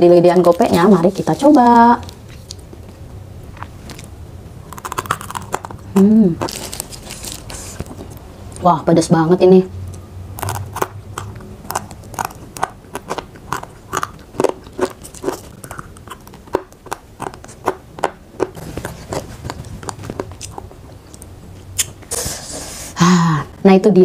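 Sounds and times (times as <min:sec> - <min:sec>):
crunching and chewing snack: 0:03.5 - 0:08.2, 0:10.4 - 0:21.9.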